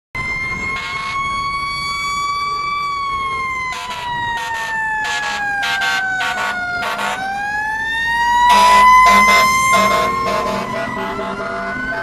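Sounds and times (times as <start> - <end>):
siren wailing: 0.2 - 12.0
air horn blasts: 3.7 - 7.2, 8.5 - 12.0.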